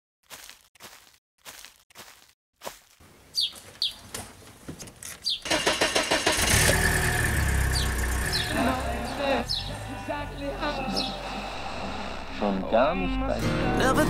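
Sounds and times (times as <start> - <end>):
bird chirping: 3.3 - 4.2, 5.1 - 5.5, 7.6 - 11.4
car engine cranking and idling: 5.4 - 12.0.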